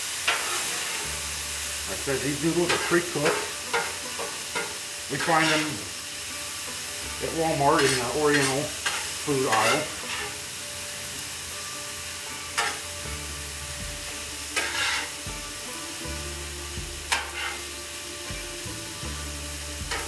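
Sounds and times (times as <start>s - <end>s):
noodles sizzling on griddle: 0.0s - 20.0s
metal spatulas scraping steel: 0.2s - 5.9s, 7.2s - 10.5s, 12.4s - 16.2s, 17.1s - 18.0s.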